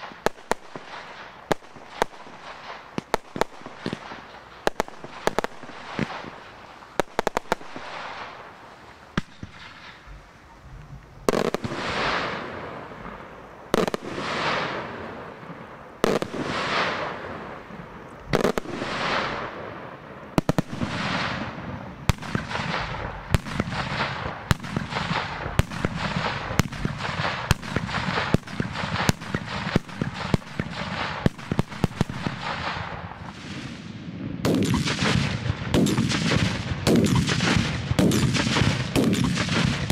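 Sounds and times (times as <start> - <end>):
firework shells bursting: 0.0 - 10.4, 34.5 - 39.9
sharp firework cracks: 0.0 - 10.4, 11.0 - 39.9.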